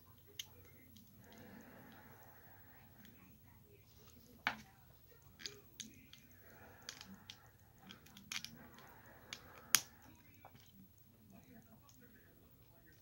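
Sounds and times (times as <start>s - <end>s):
plastic bricks clicking: 6.8s - 9.9s.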